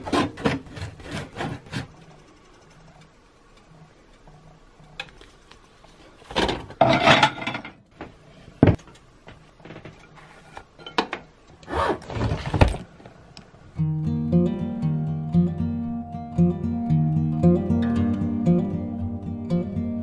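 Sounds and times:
dishes clattering: 6.3s - 7.8s, 10.7s - 11.3s.

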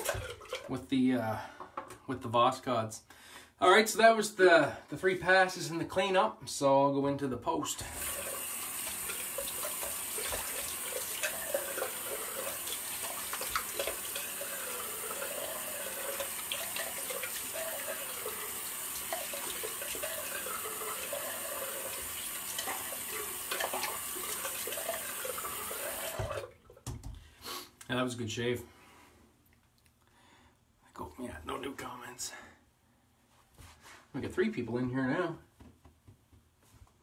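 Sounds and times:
water splashing: 0.0s - 0.7s, 7.9s - 26.5s
tap running into sink: 8.0s - 27.2s.

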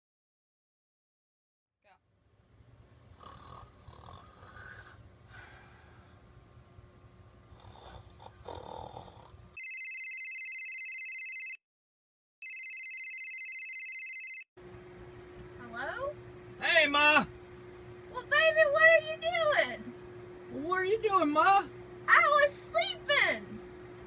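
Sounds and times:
person snoring: 3.2s - 5.8s, 7.5s - 9.4s
phone ringtone warbling: 9.6s - 11.6s, 12.4s - 14.4s.

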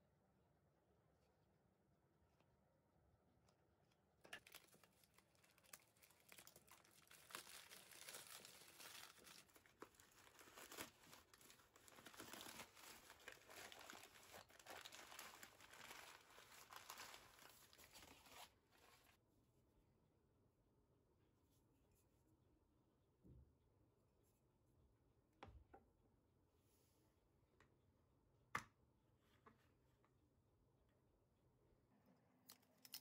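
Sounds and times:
newspaper crumpling and tearing: 4.3s - 19.2s.

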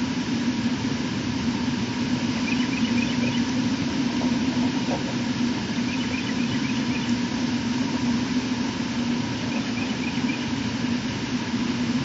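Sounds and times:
rushing background noise: 0.0s - 12.0s
steady low engine-like hum: 0.0s - 12.0s
faint high chirps: 2.4s - 3.5s, 5.8s - 7.2s, 9.4s - 10.5s.

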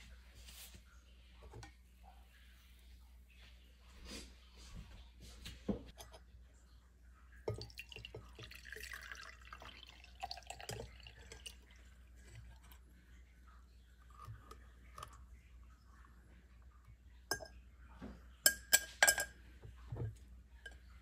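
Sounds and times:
juice trickling through a strainer: 7.3s - 17.1s.

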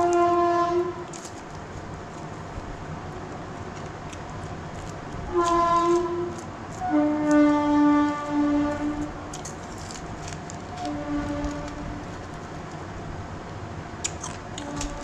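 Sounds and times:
horn blasts: 0.0s - 1.1s, 5.3s - 9.4s, 10.8s - 12.1s.

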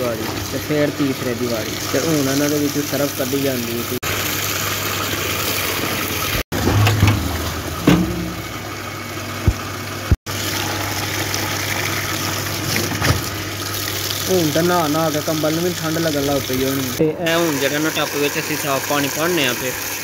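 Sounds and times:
knocks against metal tub: 6.5s - 8.7s.

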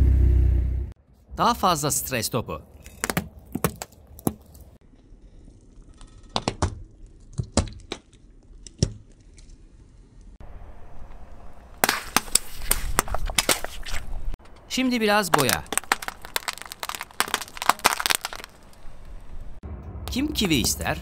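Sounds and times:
balls popping under car tyre: 2.8s - 4.7s, 6.0s - 9.5s, 11.8s - 19.6s.

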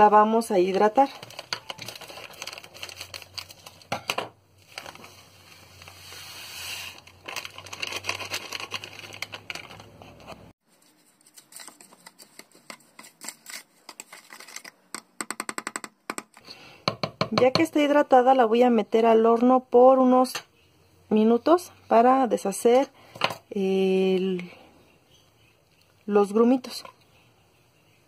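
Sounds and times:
plastic packet crinkling: 0.6s - 3.9s, 6.9s - 10.0s.

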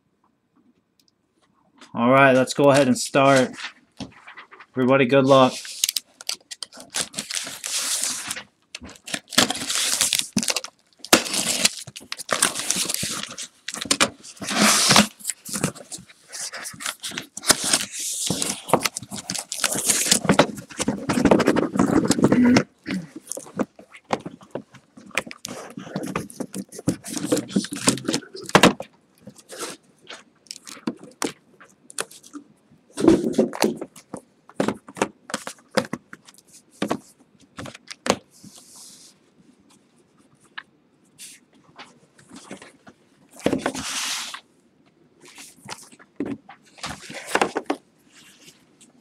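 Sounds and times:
cardboard scraping and rustling: 6.7s - 22.5s, 23.2s - 30.2s, 43.4s - 44.4s.

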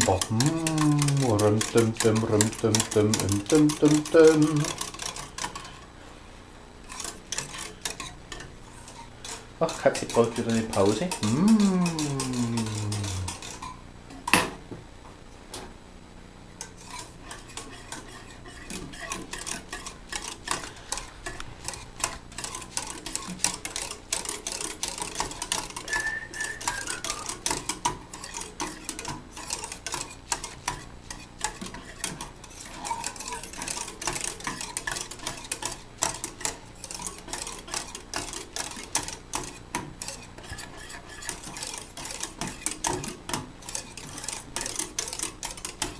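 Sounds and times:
whisk scraping a metal pot: 0.0s - 5.9s, 6.8s - 13.8s, 16.6s - 45.9s.

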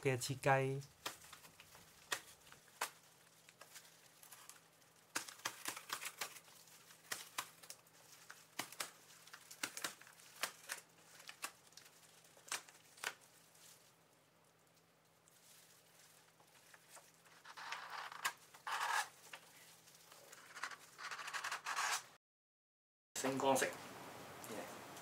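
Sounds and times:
cardboard tearing: 1.0s - 13.2s, 16.6s - 19.6s.

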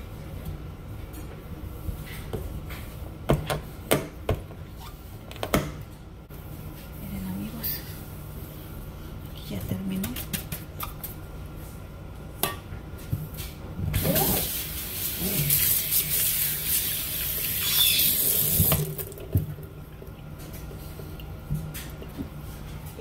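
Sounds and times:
water spraying into a steel sink: 14.0s - 19.2s.

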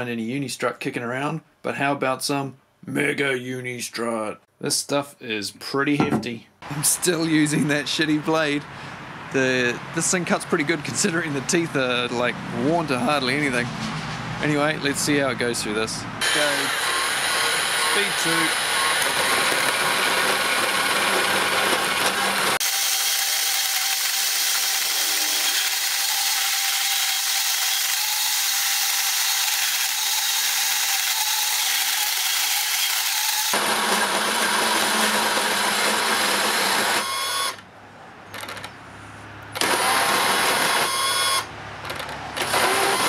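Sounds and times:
bandsaw cutting steel: 16.2s - 37.6s, 39.6s - 41.5s, 42.4s - 43.0s.

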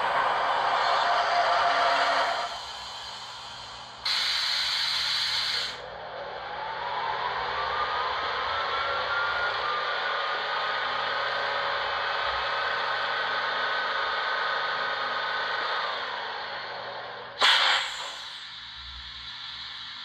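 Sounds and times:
air compressor running: 2.3s - 5.8s, 17.4s - 20.0s.

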